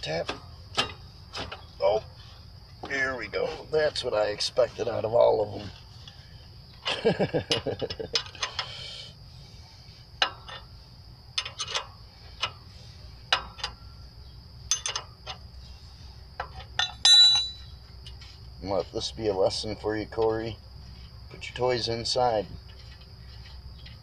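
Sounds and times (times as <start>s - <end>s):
small metal hardware clinking: 7.1s - 8.7s, 10.2s - 10.7s, 11.3s - 12.6s, 13.3s - 14.0s, 14.6s - 15.5s, 16.4s - 18.2s.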